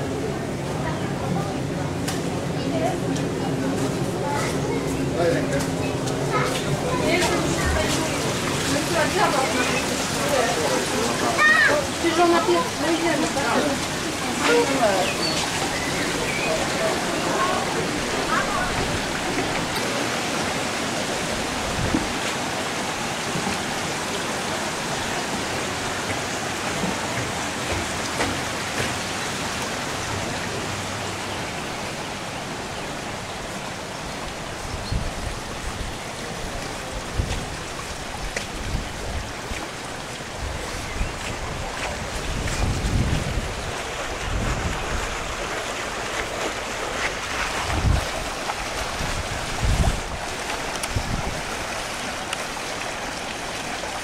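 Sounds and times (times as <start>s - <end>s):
water rushing: 0.0s - 54.0s
wind buffeting microphone: 12.0s - 22.5s, 34.3s - 52.2s.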